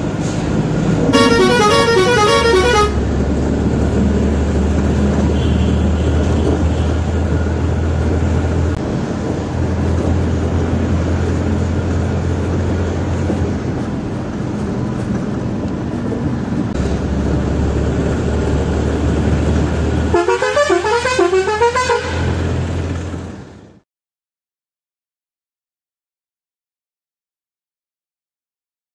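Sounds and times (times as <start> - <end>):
vehicle engine and road drone: 0.0 - 23.8
musical air horn: 1.1 - 3.0, 20.1 - 22.3.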